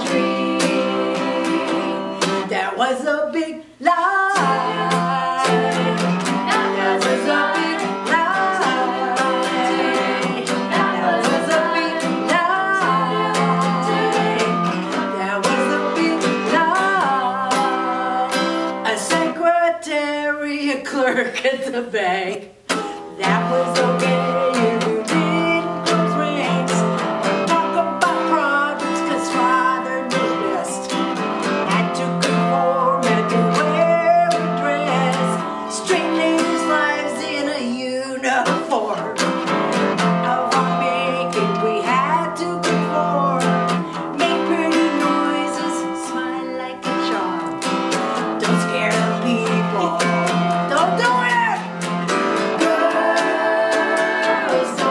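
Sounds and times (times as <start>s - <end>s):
acoustic guitar strumming: 0.0s - 21.4s, 22.3s - 54.9s.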